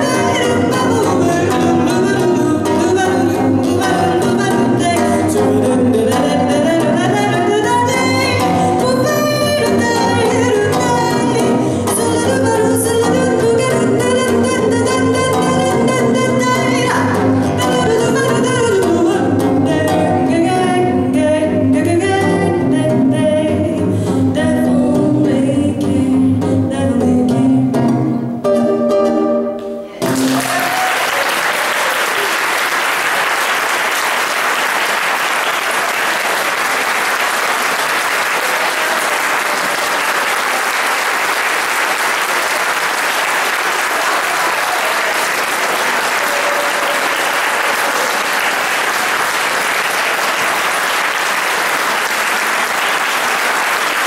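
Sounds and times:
woman singing: 0:00.0 - 0:28.0
jazz guitar: 0:00.0 - 0:30.4
audience applauding: 0:30.0 - 0:54.0.

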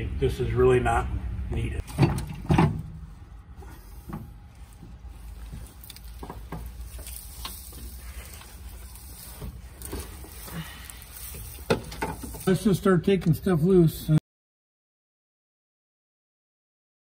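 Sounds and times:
low steady hum: 0:00.0 - 0:14.2
handling clicks taps and rustles: 0:04.0 - 0:12.7.

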